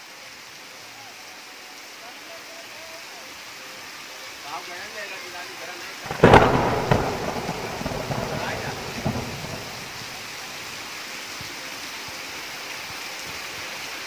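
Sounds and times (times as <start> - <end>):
heavy rain hissing: 0.0 - 14.0
thunderclap rumbling and crackling: 6.1 - 10.4.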